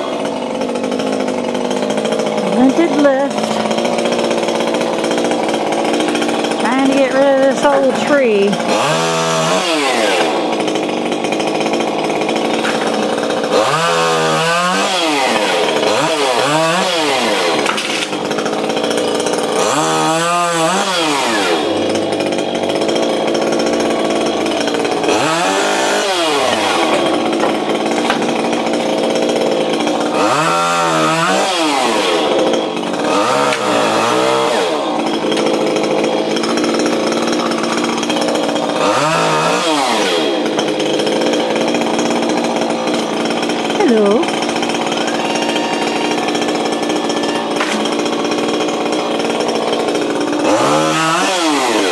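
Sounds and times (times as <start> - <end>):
chainsaw cutting tree limbs: 0.0 - 51.9.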